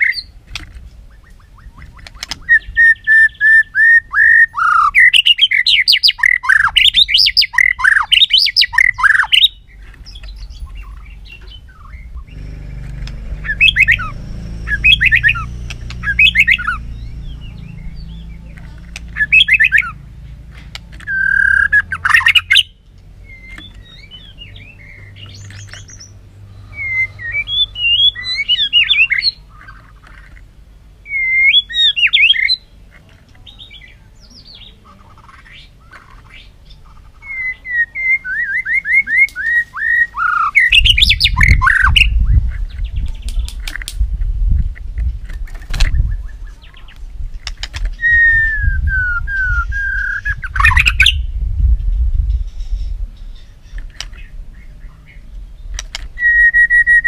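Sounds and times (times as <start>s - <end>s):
bird singing whistles: 1.1s - 9.6s, 13.4s - 18.4s, 19.2s - 20.0s, 21.0s - 29.4s, 31.0s - 32.6s, 37.2s - 42.2s, 47.9s - 51.3s, 55.8s - 57.0s
low rumble: 9.6s - 22.2s, 40.8s - 56.2s.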